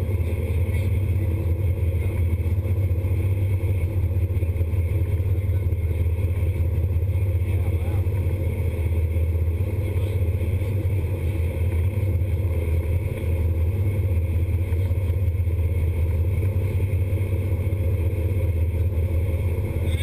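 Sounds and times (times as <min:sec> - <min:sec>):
boat engines droning: 0:00.0 - 0:20.0.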